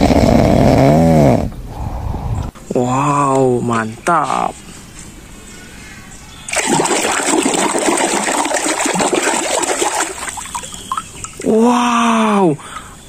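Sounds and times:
water running and splashing: 0:06.5 - 0:11.5.

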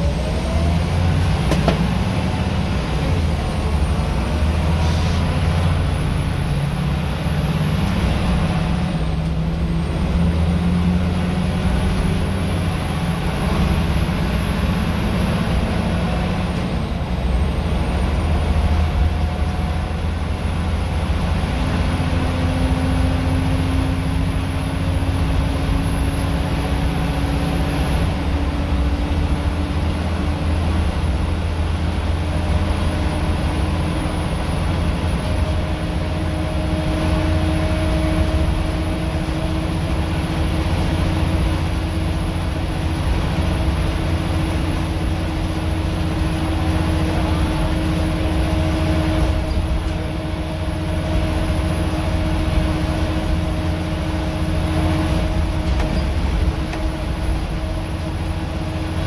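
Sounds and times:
bus diesel engine drone: 0:00.0 - 0:59.0
road noise: 0:00.0 - 0:59.0.

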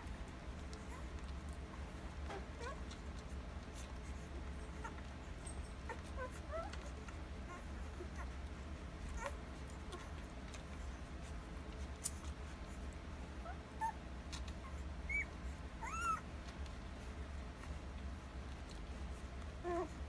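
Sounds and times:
puppies squeaking: 0:13.4 - 0:16.3.

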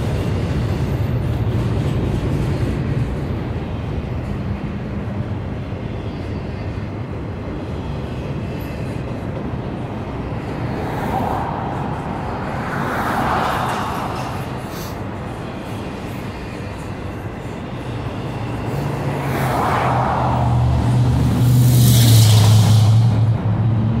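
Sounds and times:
freight train wheels rumbling: 0:00.0 - 0:24.0
train hiss: 0:13.4 - 0:16.2, 0:21.4 - 0:23.3.

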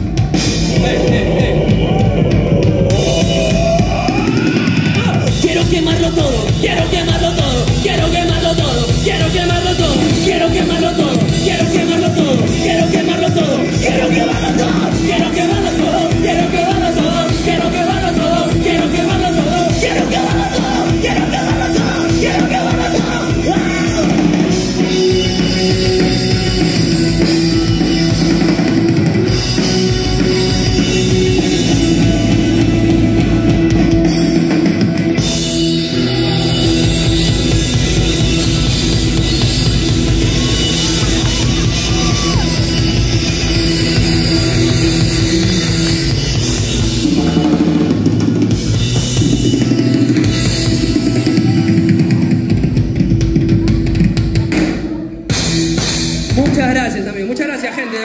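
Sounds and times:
rock band playing: 0:00.0 - 0:58.0.

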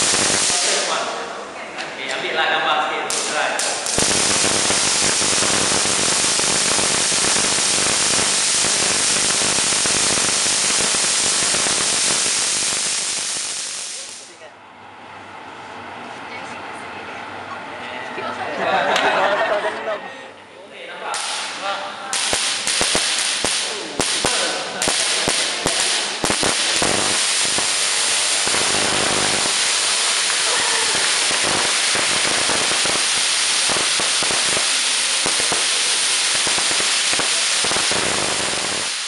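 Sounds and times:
electric arc crackling: 0:00.0 - 0:01.4, 0:03.0 - 0:14.4, 0:21.1 - 0:39.0.

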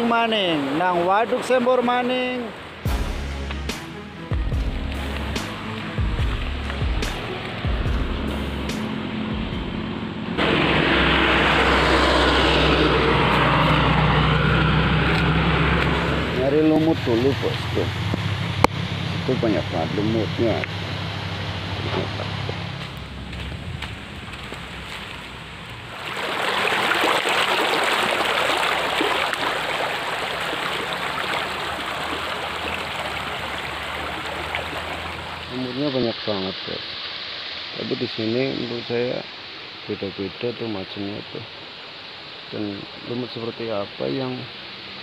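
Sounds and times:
stream water running over rocks: 0:00.0 - 0:02.9, 0:10.3 - 0:45.0
road and wind rush: 0:00.0 - 0:37.9
vehicle engine droning: 0:04.4 - 0:26.2, 0:28.3 - 0:35.9.

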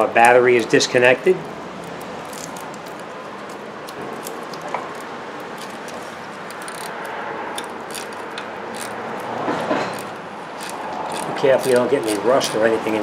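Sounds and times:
ratcheting wrench clicking: 0:05.6 - 0:13.0.

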